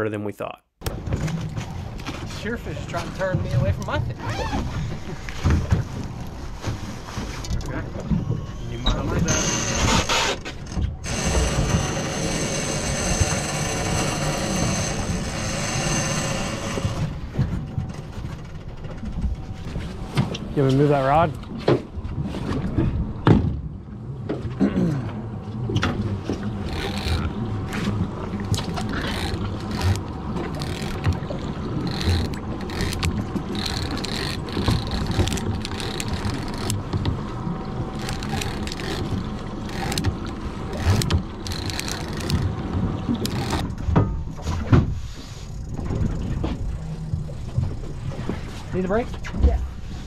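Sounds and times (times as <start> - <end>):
outboard motors running: 0.8 - 50.0
knocks and rubbing of fishing rod: 25.8 - 46.6.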